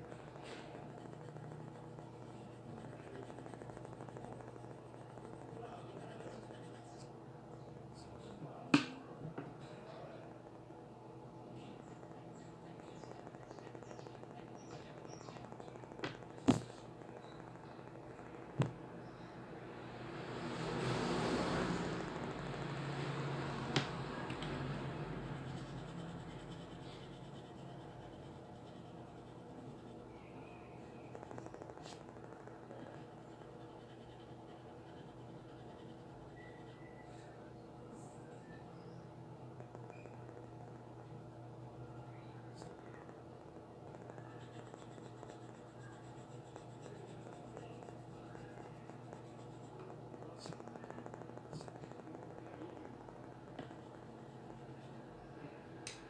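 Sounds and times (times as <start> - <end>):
pencil and eraser rubbing paper: 0.0 - 7.1, 24.6 - 30.1, 31.2 - 36.7, 44.0 - 51.7
faint steady hum: 0.0 - 56.0.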